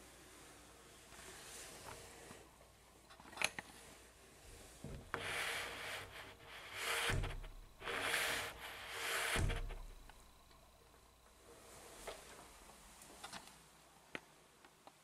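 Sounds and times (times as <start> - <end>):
shower door sweep rubbing on tile: 4.5 - 10.4.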